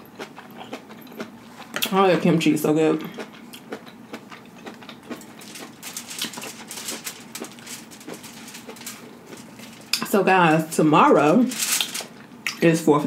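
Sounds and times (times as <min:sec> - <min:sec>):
chewing crunchy food: 0:00.0 - 0:02.0, 0:03.0 - 0:10.0.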